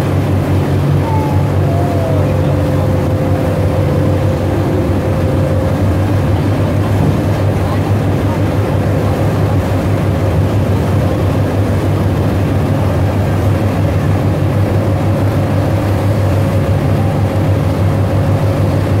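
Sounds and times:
boat engines droning: 0.0 - 19.0
rushing wake water: 0.0 - 19.0.

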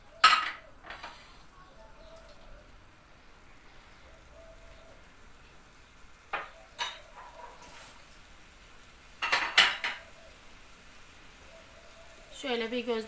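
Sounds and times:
dishes and utensils clinking: 0.1 - 1.4, 6.3 - 8.0, 9.2 - 10.2.

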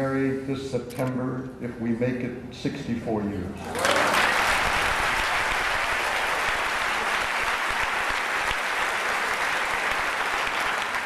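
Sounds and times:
audience applauding: 3.7 - 11.0.

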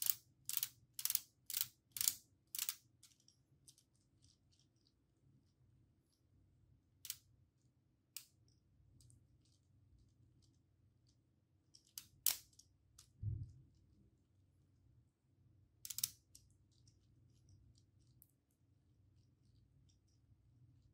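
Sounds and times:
plastic parts clicking: 0.0 - 4.9, 11.7 - 13.2, 15.8 - 17.0.

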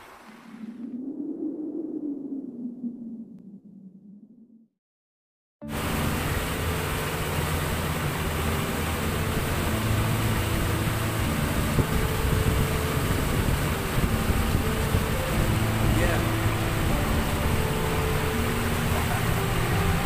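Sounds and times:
wind rushing: 0.0 - 4.7, 11.2 - 20.0
boat engine humming: 5.6 - 20.0
churning wake water: 5.6 - 20.0.

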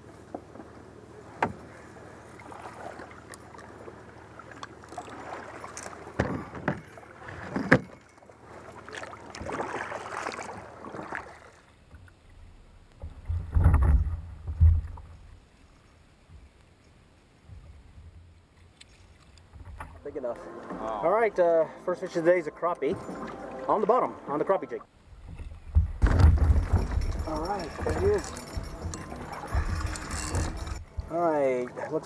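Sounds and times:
kayak paddle splashing water: 1.2 - 15.7, 24.9 - 31.8
sharp knocks and clicks: 25.2 - 31.1
loud low thumps: 25.7 - 31.1.

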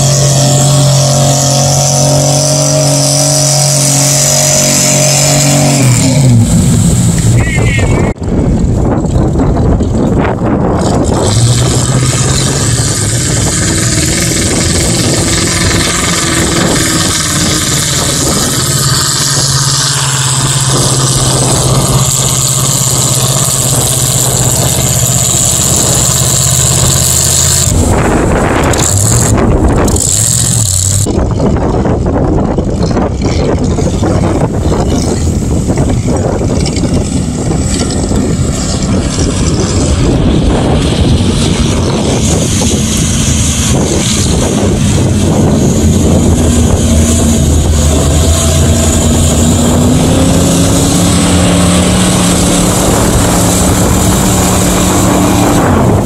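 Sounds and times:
loud rushing noise: 0.0 - 56.0
truck engine at high throttle: 0.0 - 56.0.

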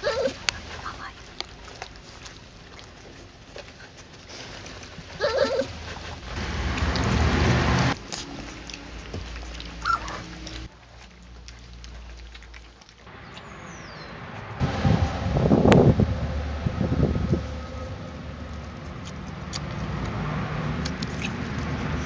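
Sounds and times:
puppy whining: 0.0 - 0.5, 3.6 - 6.3, 8.1 - 10.7
puppies eating wetly: 0.0 - 14.4, 18.3 - 22.0
rush of noise: 13.1 - 22.0.

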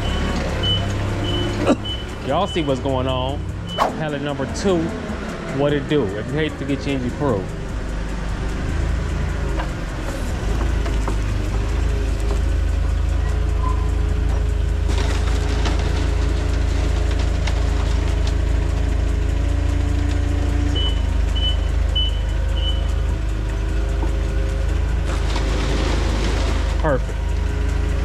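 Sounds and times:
backup alarm beeps: 0.0 - 3.0, 20.8 - 23.0
forklift engine rumble: 0.0 - 28.0.

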